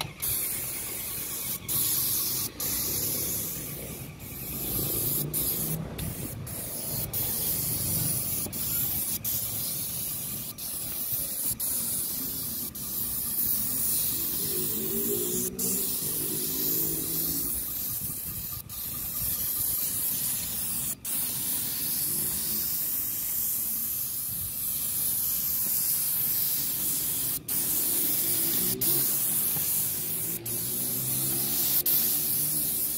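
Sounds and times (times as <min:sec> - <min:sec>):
spray gun hissing: 0:00.0 - 0:32.9.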